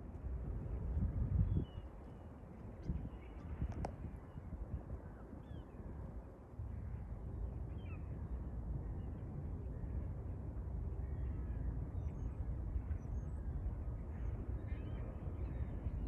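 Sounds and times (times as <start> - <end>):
steady low rumble: 0.0 - 5.2.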